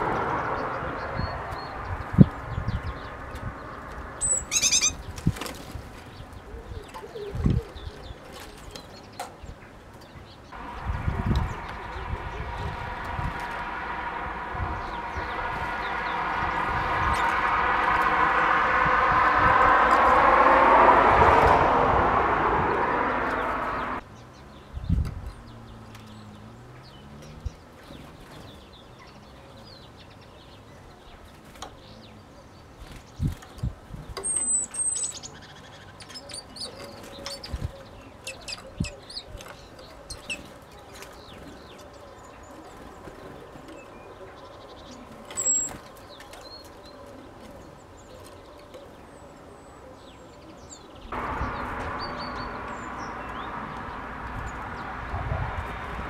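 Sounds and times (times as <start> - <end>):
high thin bird calls: 4.2 - 5.1.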